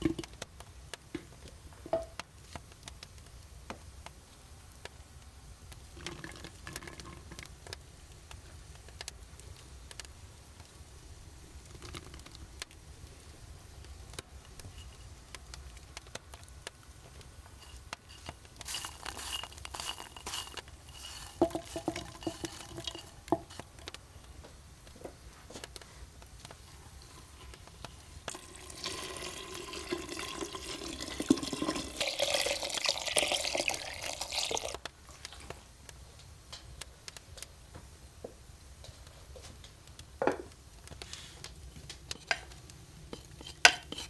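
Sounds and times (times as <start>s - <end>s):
kitchen utensils clinking: 17.6s - 23.8s
water running: 17.6s - 23.8s, 28.2s - 34.8s.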